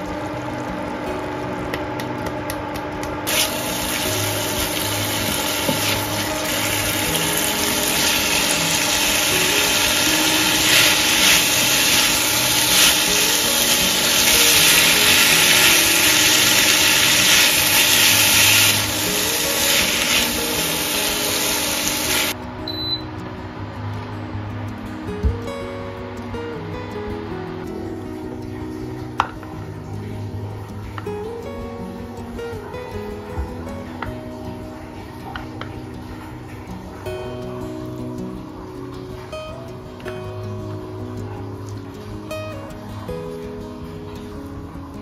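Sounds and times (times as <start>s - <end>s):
food sizzling in a pan: 3.3s - 22.4s.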